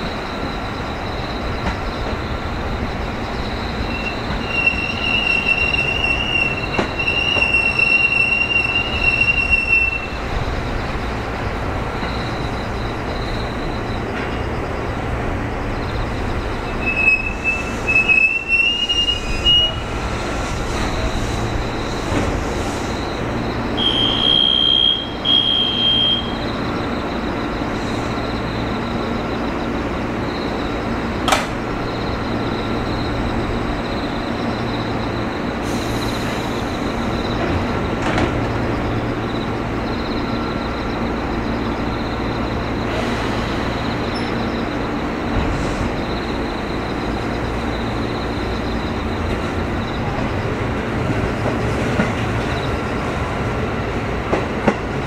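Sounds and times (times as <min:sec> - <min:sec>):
train brake squeal: 0:03.3 - 0:10.4, 0:16.6 - 0:23.2, 0:23.8 - 0:29.2, 0:34.1 - 0:38.0, 0:41.9 - 0:44.8.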